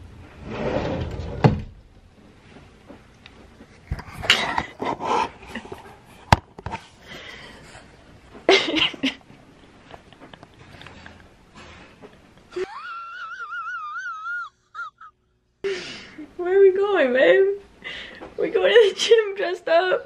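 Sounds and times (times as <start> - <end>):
stifled giggling: 7.6 - 10.8, 12.0 - 15.2.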